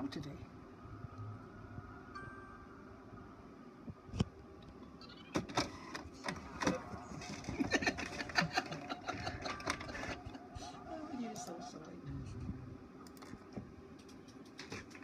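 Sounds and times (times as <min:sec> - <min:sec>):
printer carriage whirring: 0:05.3 - 0:11.8.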